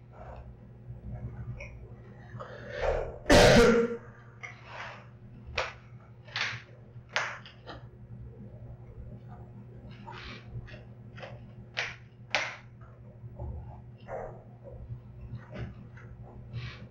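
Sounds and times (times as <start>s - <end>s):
person coughing: 3.3s - 4.1s.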